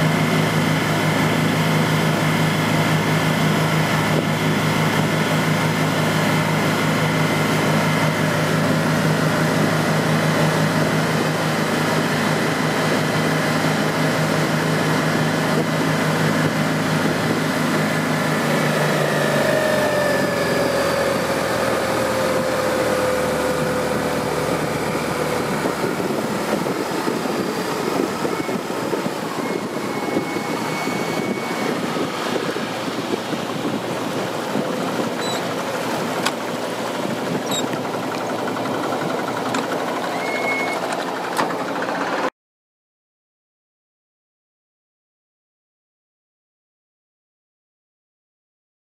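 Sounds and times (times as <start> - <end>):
outboard motor running: 0.0 - 42.3
water rushing in wake: 0.0 - 42.3
falling whine: 16.8 - 41.3.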